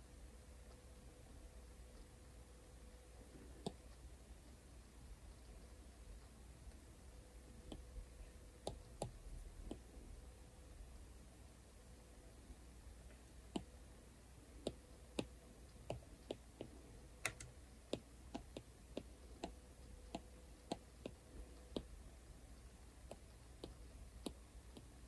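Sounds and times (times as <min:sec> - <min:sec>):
stylus tapping on glass screen: 0:08.6 - 0:09.9, 0:14.6 - 0:21.9.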